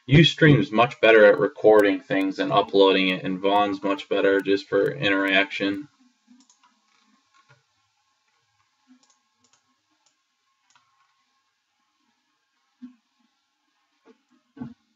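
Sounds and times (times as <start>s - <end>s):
computer mouse clicks: 6.3s - 6.8s, 8.9s - 11.0s.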